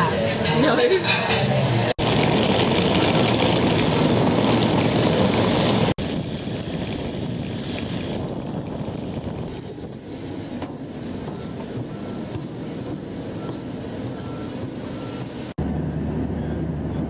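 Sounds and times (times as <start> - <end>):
suitcase rolling over tarmac: 2.0 - 15.5.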